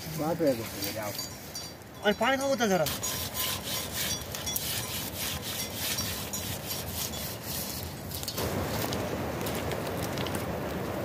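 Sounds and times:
hand scrubbing brass bowl: 0:00.0 - 0:08.2.

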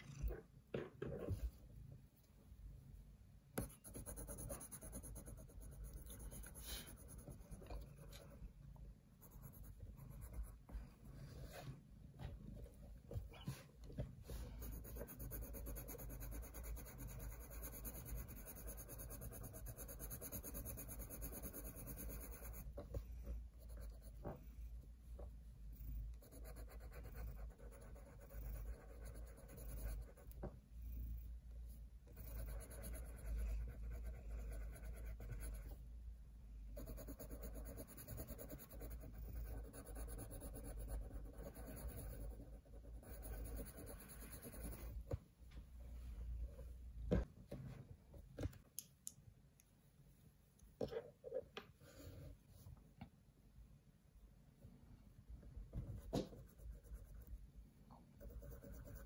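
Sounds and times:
pencil scratching on paper: 0:03.6 - 0:08.4, 0:09.2 - 0:10.7, 0:14.3 - 0:23.0, 0:23.6 - 0:24.2, 0:26.1 - 0:30.4, 0:32.0 - 0:35.8, 0:36.8 - 0:45.0, 0:56.0 - 0:57.4, 0:58.2 - 0:59.0.

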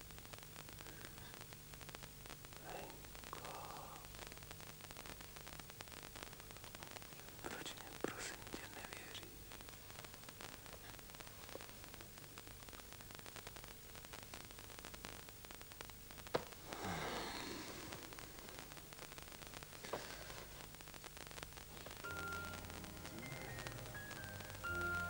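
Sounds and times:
low background hiss: 0:00.0 - 0:25.0
quiet music: 0:21.9 - 0:25.0.

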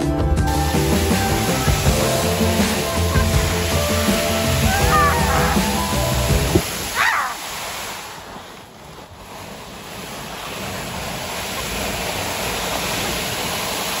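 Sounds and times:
plastic sled scraping over snow: 0:00.5 - 0:14.0
wind on microphone: 0:03.5 - 0:14.0.

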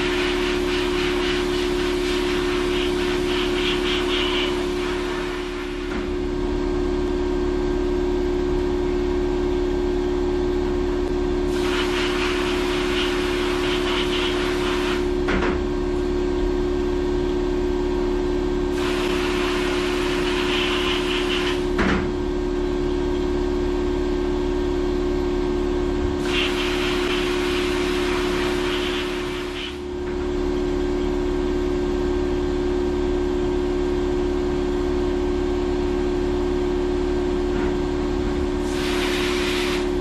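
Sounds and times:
machine hum: 0:00.0 - 0:40.0.

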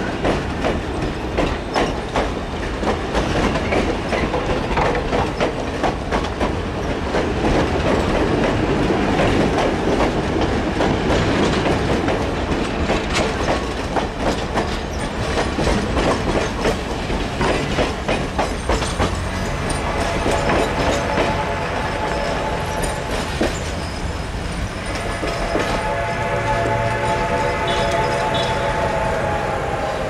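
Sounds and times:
train wheels clicking over rail joints: 0:00.0 - 0:28.8
train whistle: 0:19.6 - 0:23.6, 0:24.8 - 0:30.0.

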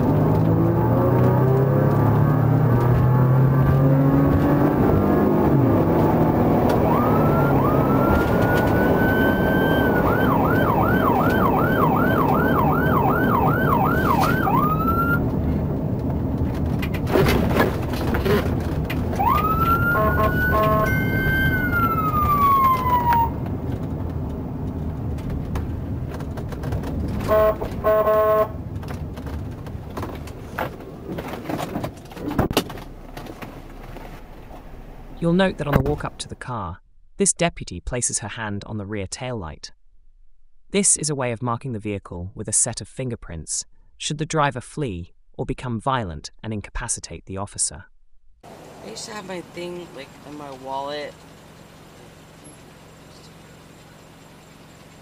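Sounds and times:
car engine and road noise: 0:00.0 - 0:37.3, 0:47.9 - 0:55.0
police siren wailing and yelping: 0:06.7 - 0:15.2, 0:19.1 - 0:23.4.

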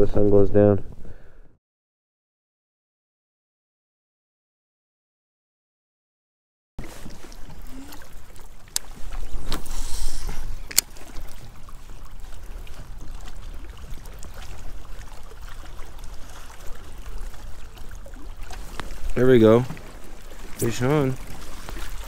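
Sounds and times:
water lapping against hull: 0:06.8 - 0:22.0.

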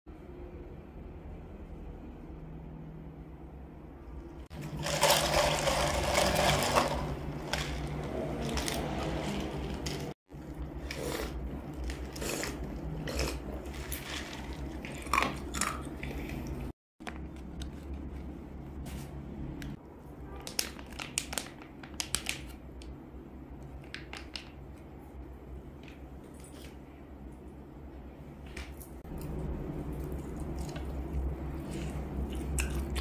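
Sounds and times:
plastic snack packets rustling: 0:04.6 - 0:10.2.

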